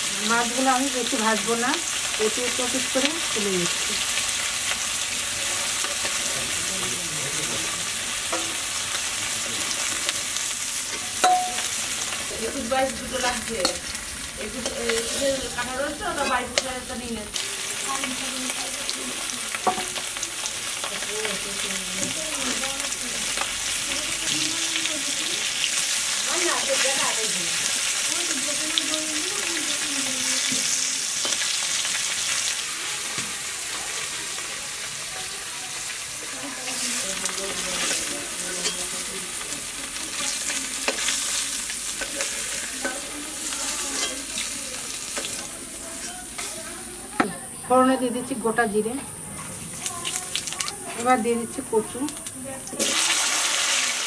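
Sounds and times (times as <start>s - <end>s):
fish sizzling in hot oil: 0.0s - 54.0s
metal spatula scraping: 10.8s - 17.0s, 36.7s - 39.2s, 40.2s - 46.7s
metal spatula clink: 11.2s - 11.8s, 37.8s - 39.0s, 43.9s - 44.3s.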